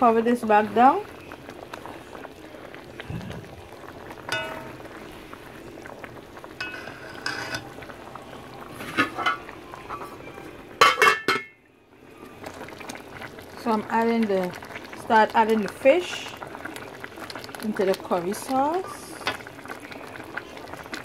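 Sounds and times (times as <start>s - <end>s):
curry bubbling in pan: 0.0s - 10.8s, 12.0s - 21.0s
metal lid clanking: 4.3s - 4.8s, 8.8s - 9.5s, 10.8s - 11.6s
metal ladle clinking pan: 4.3s - 4.9s, 6.6s - 7.7s, 10.8s - 11.6s.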